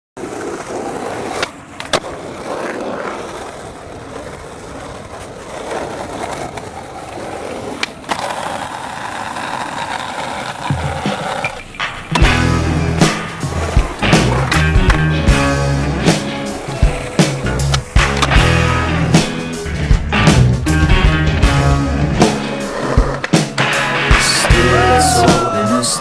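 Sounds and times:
skateboard scraping on concrete: 0.2 - 26.0
skateboard wheels rolling on asphalt: 0.2 - 26.0
skateboard tail pop and landing: 10.6 - 15.1.

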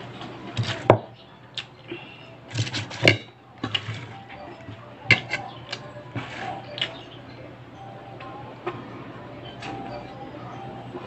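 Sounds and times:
clicks and knocks from dishes: 0.2 - 7.1
chewing and mouth smacks: 5.7 - 7.0.

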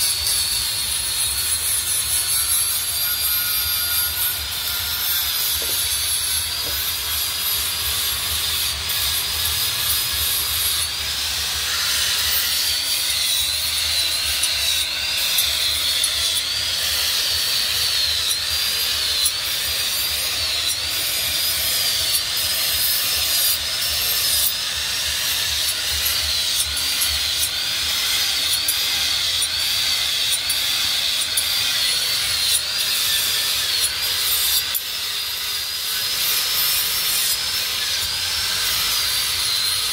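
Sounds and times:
angle grinder grinding steel: 0.0 - 39.9.

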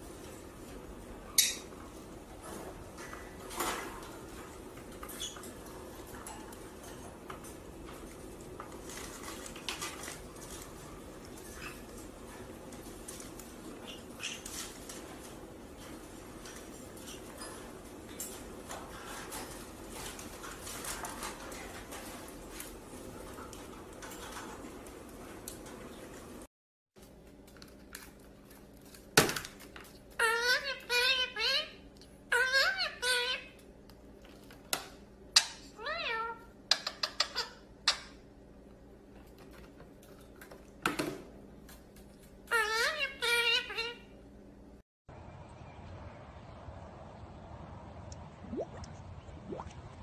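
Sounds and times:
puppy and parrot squeaking: 30.2 - 33.6, 42.5 - 44.1.

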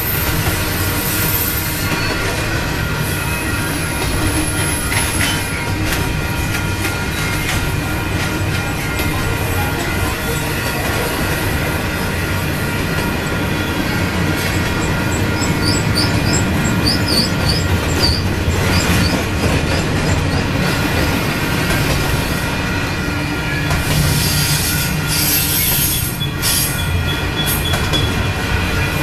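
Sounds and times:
train wheels rumbling on rail: 0.0 - 29.0
high wheel squeals: 10.0 - 20.8, 23.5 - 28.9.

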